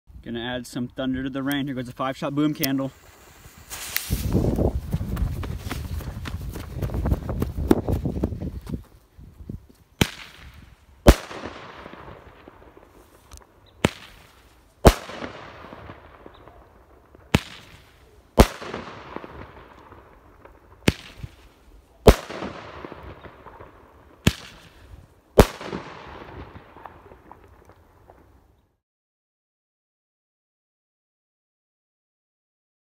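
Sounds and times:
firework salute bangs with echo: 0:13.8 - 0:16.6, 0:17.2 - 0:20.0, 0:22.1 - 0:24.8.

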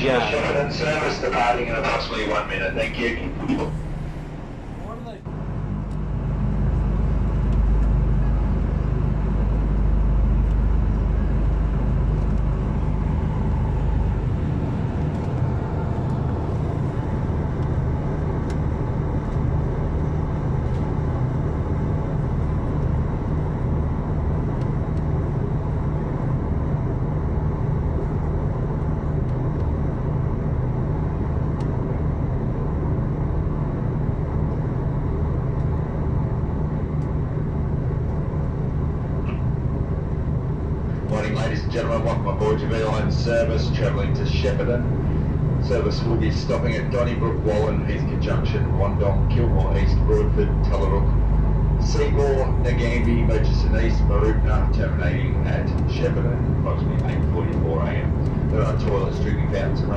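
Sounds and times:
diesel train rumbling: 0:00.0 - 0:59.9.

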